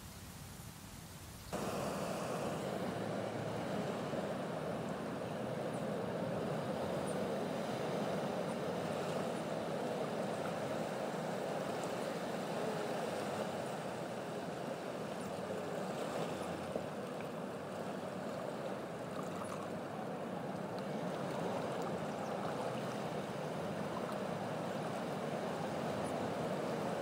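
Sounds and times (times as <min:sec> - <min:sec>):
steady rushing noise: 0:01.5 - 0:17.7.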